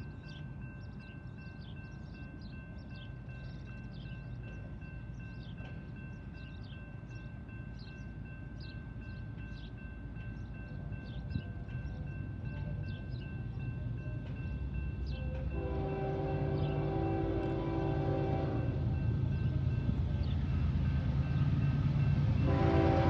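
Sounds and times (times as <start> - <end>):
birds chirping: 0.0 - 22.4.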